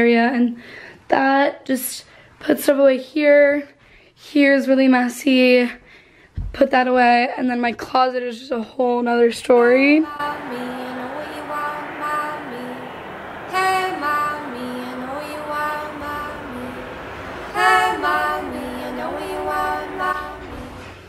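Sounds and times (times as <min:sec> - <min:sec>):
woman singing: 0:09.6 - 0:21.0.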